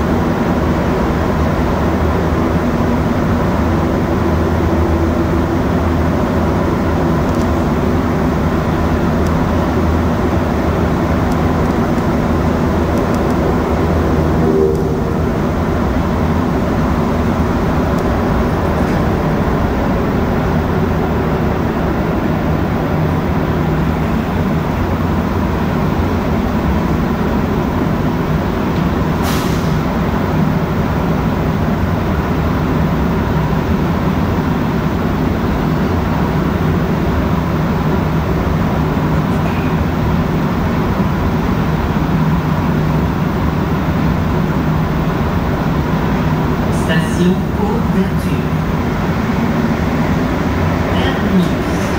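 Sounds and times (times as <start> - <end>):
metro train rumbling in tunnel: 0.0 - 51.9.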